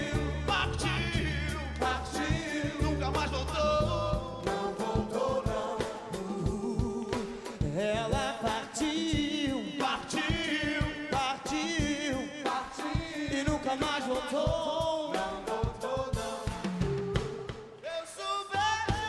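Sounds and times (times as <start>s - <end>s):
bass: 0.0s - 12.3s
drums and percussion: 0.0s - 19.0s.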